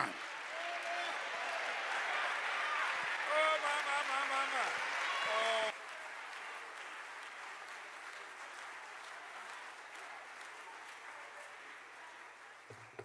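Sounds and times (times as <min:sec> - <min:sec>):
crowd applauding: 0:00.0 - 0:13.0.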